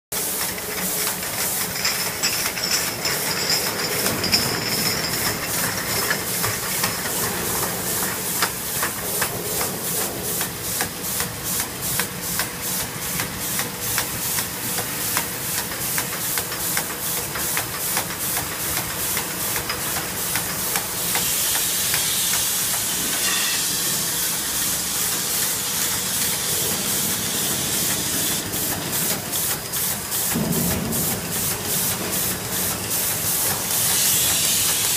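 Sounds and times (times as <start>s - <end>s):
rhythmic machine clicking: 0.2s - 23.3s, 24.3s - 34.9s
hiss of air or gas: 21.0s - 34.9s.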